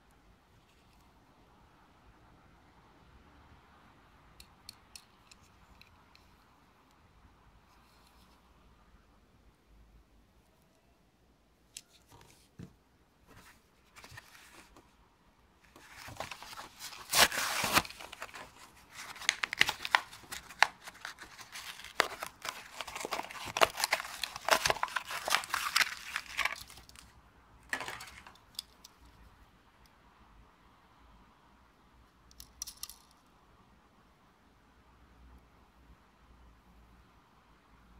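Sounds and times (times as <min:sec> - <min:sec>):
cardboard and plastic tearing: 0:15.8 - 0:27.0.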